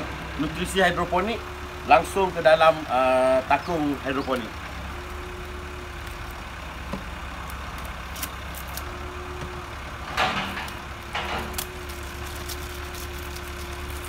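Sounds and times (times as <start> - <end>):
plastic bottles being handled: 11.4 - 14.0.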